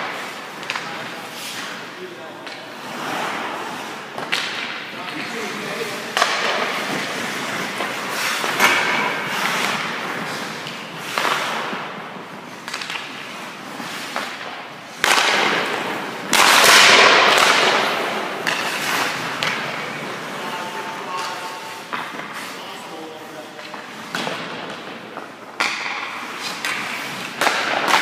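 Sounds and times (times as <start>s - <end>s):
skate blades scraping on ice: 0.0s - 2.0s, 2.6s - 28.0s
stick and puck knocking on pads: 24.1s - 28.0s.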